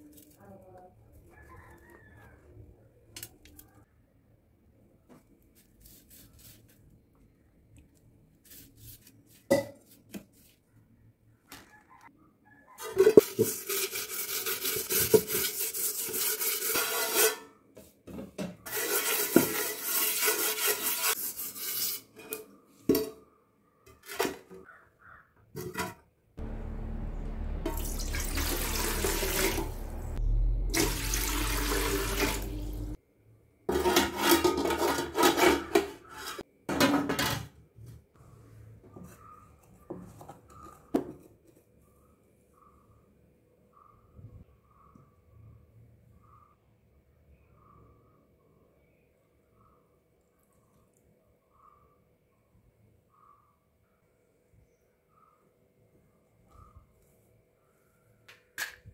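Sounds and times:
scrubbing metal pot with ash: 13.2 - 17.4, 18.7 - 22.1
water splashing: 26.4 - 33.0.

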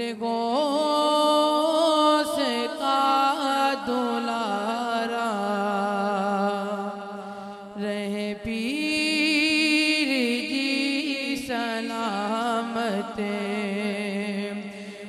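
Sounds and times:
man singing through microphone: 0.0 - 7.1, 7.7 - 15.0.

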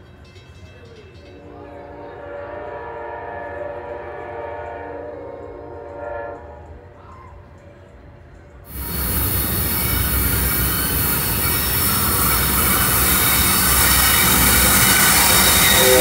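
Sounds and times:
rail and wheel noise: 0.0 - 16.0
diesel engine rumble: 8.7 - 16.0
high wheel squeal: 8.7 - 16.0.

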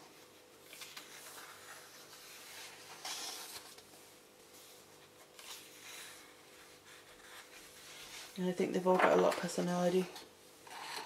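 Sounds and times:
paper pages rustling: 0.6 - 8.4.

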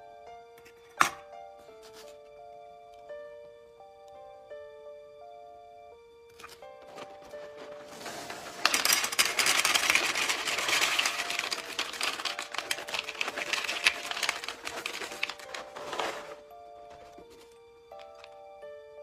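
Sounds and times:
faint background music: 0.0 - 19.0
cereal pouring into bowl: 7.3 - 16.4.

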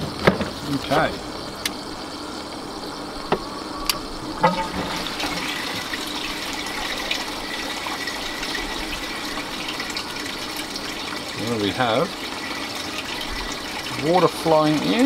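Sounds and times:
water running through hoses: 4.4 - 15.0.

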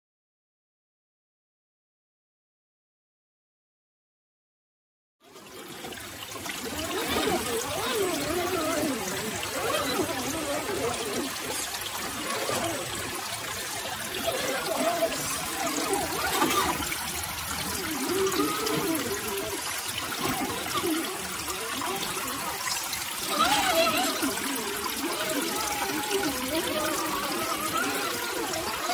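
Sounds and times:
creek water babbling over rocks: 5.2 - 28.9.

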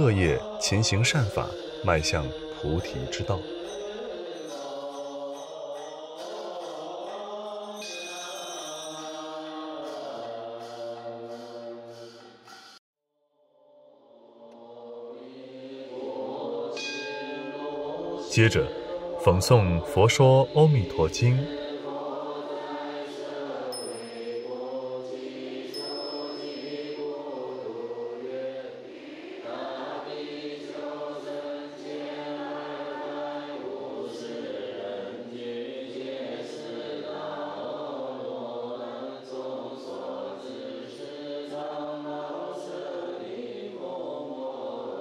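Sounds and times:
group chanting in slow melody: 0.0 - 12.8, 13.6 - 45.0
high ringing tone: 25.8 - 27.6.

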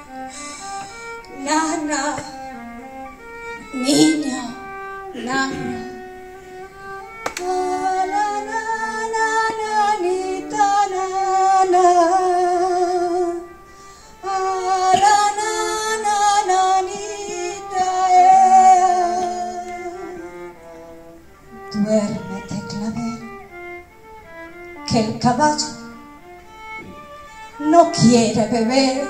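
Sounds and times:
violin lullaby melody: 0.0 - 29.0
woman's wordless singing: 1.3 - 2.6, 3.6 - 6.0, 7.3 - 13.5, 14.2 - 20.6, 21.6 - 23.3, 27.6 - 29.0.

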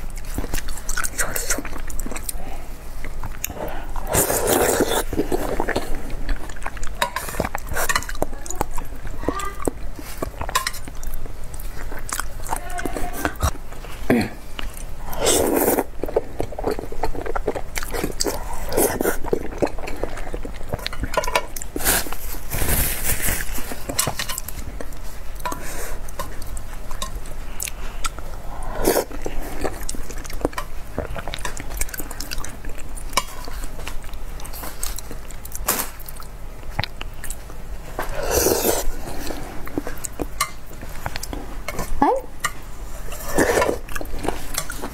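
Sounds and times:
biting and chewing: 14.6 - 25.5.

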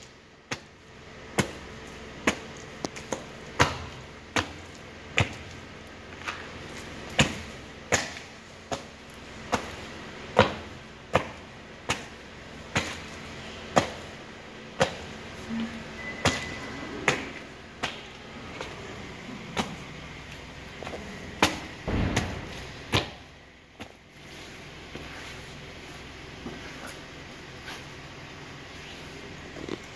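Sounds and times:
boots stamping on raw meat: 0.5 - 15.2, 19.5 - 25.4
heavy low thud: 21.7 - 23.4.

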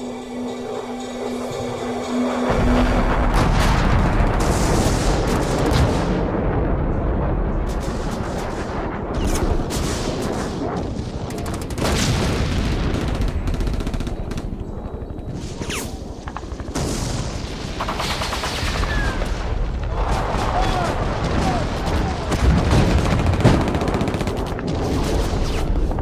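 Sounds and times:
low rumble: 0.0 - 15.4
rapid gunfire: 7.6 - 14.6, 16.6 - 19.2, 20.0 - 25.9.

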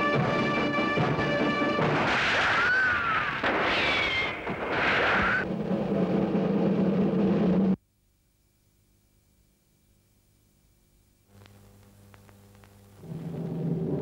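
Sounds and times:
orchestral music: 0.0 - 2.2
low steady hum: 5.4 - 14.0.

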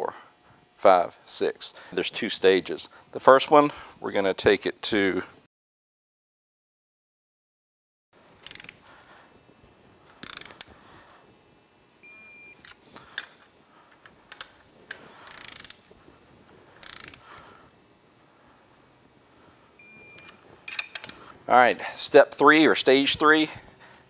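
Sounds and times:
torque wrench ratchet clicking: 8.4 - 8.8, 10.2 - 10.7, 15.2 - 15.8, 16.8 - 17.2.

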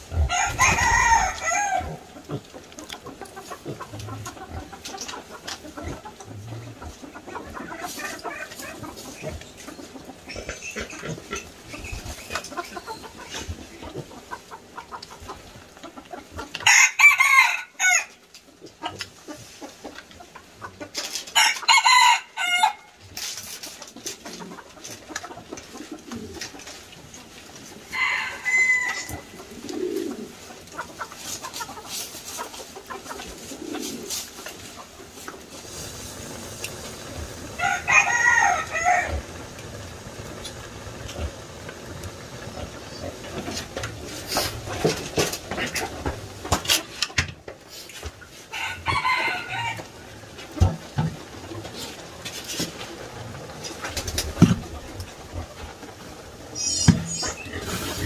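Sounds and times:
rooster crowing: 0.2 - 2.0, 16.6 - 18.1, 21.4 - 22.9, 27.9 - 29.3, 37.6 - 39.3, 48.5 - 49.9.

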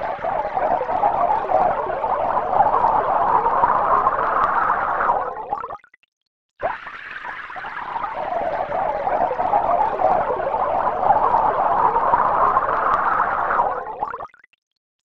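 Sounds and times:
synthesized water pouring into tank: 0.0 - 6.0, 6.6 - 14.8.

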